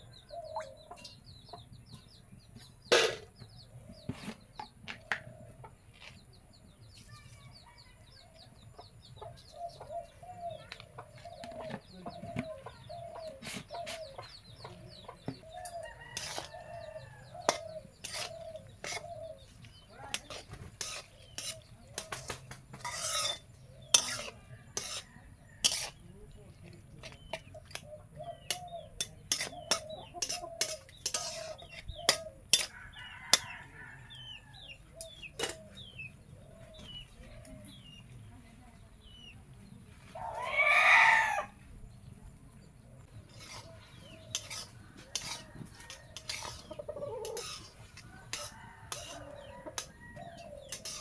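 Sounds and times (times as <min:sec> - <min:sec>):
chickens clucking: 0:00.0 - 0:51.0
small birds chirping: 0:00.0 - 0:51.0
metal spatula scraping metal pan: 0:15.6 - 0:16.6, 0:17.3 - 0:19.2, 0:20.1 - 0:26.0, 0:29.0 - 0:32.7, 0:43.3 - 0:49.9, 0:50.7 - 0:51.0.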